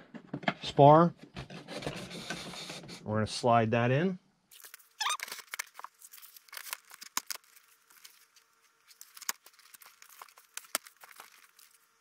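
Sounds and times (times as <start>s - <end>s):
foam and plastic rubbing: 4.8s - 12.0s.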